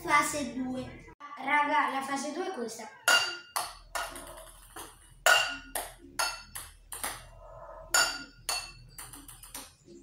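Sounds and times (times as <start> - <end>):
balls bouncing on tiled floor: 3.0 - 10.0.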